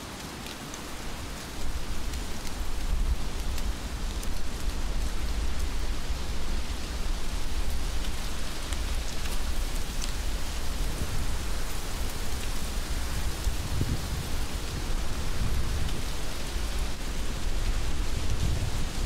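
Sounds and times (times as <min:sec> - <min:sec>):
heavy rain falling: 0:00.0 - 0:19.0
raindrop ticks: 0:00.1 - 0:10.9.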